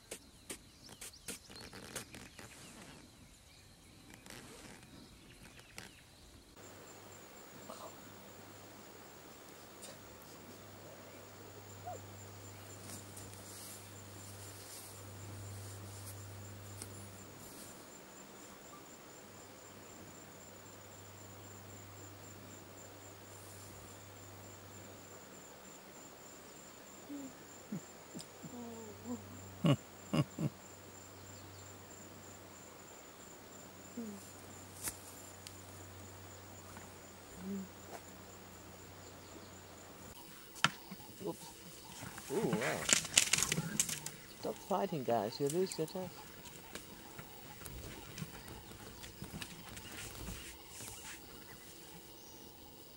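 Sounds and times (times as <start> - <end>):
low steady hum: 6.6 - 25.3
pulsing insect trill: 6.6 - 52.9.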